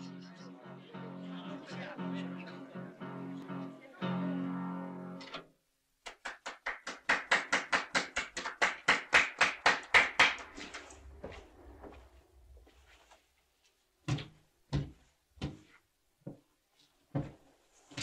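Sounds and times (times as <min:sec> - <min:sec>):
people clapping: 0:06.0 - 0:11.0.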